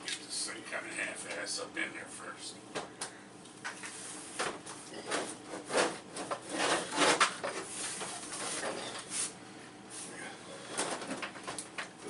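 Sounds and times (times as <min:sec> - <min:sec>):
oven case scraping on wood: 0:03.9 - 0:09.3.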